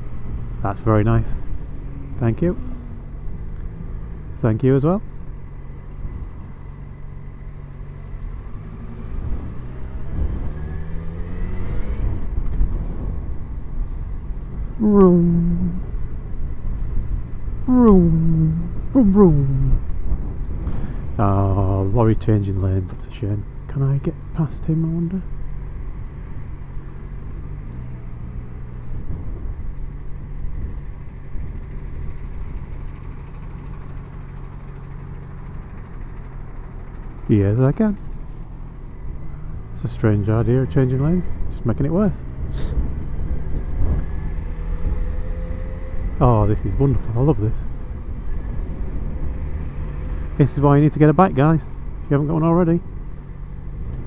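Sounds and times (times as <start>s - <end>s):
motorcycle engine revving: 0.0s - 4.5s, 5.1s - 13.6s, 24.8s - 54.0s
road and wind noise: 0.0s - 54.0s.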